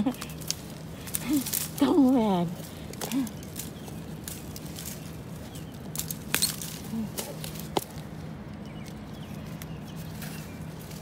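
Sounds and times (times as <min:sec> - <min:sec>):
bamboo canes cracking: 0:00.0 - 0:08.2
bamboo rustling and crackling: 0:00.0 - 0:11.0.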